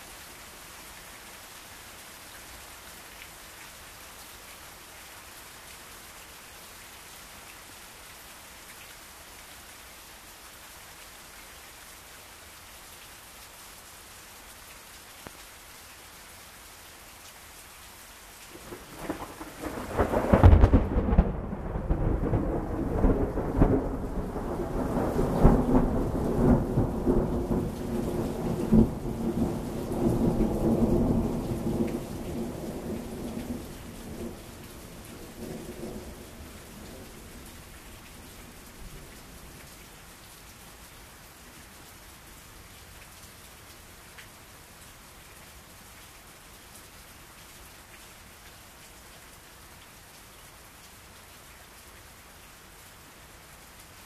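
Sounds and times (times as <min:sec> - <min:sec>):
steady rain falling: 0:00.0 - 0:54.0
thunder cracking and rumbling: 0:18.6 - 0:34.4.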